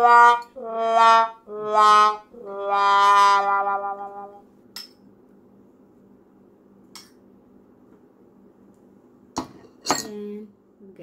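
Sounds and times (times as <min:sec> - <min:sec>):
metal utensil clinking on ceramic dish: 0:09.4 - 0:10.2.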